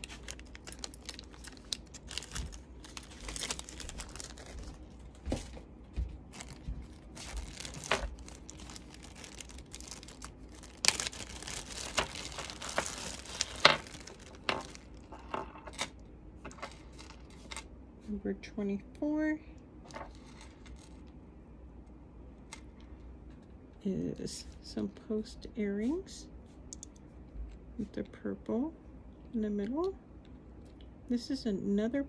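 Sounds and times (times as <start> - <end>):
plastic bags crinkling: 0.0 - 5.5, 6.3 - 17.6, 19.9 - 21.1.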